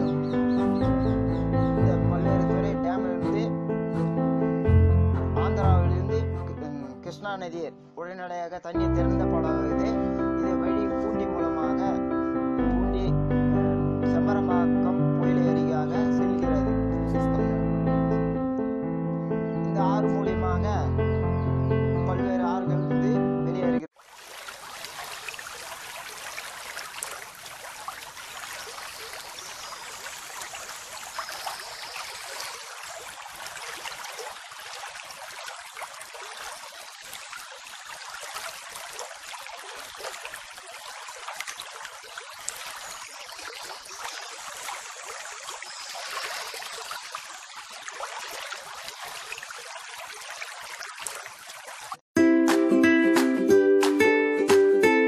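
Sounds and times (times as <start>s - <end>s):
hiss of flowing water: 24.0s - 50.4s.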